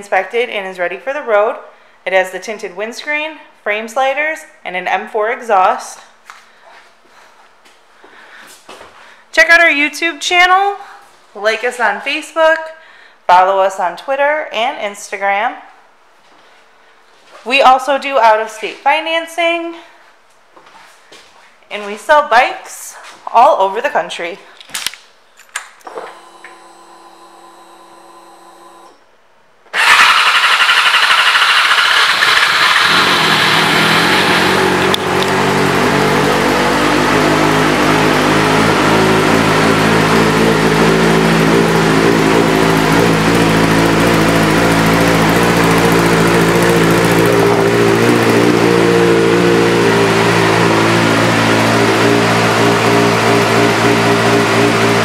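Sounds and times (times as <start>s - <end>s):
motorcycle engine starting and idling: 29.7s - 55.0s.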